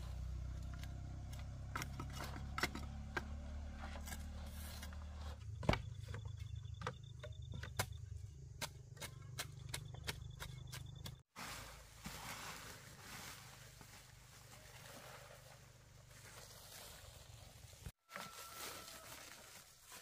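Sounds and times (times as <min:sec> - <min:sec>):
wooden pole tamping earth: 0:00.6 - 0:14.0.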